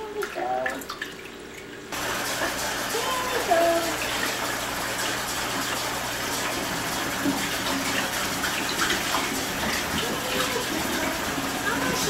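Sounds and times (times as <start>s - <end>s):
faucet water pouring into sink: 0.0s - 12.0s.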